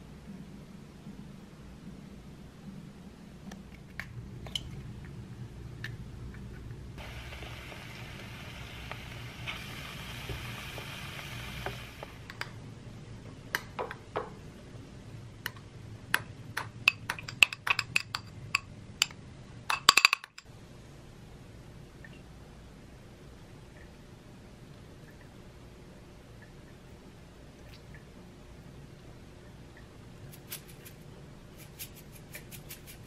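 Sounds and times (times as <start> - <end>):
egg sizzling in a pan: 7.0 - 12.3.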